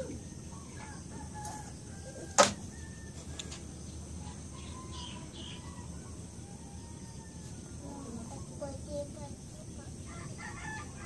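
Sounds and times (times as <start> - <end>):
faint bird chirps: 0.0 - 10.7.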